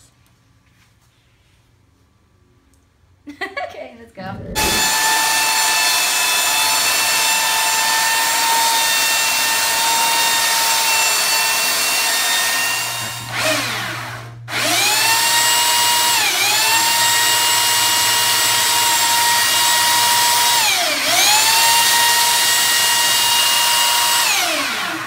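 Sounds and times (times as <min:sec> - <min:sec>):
high motor whine: 0:04.2 - 0:06.7
belt sander spinning up: 0:04.3 - 0:25.0.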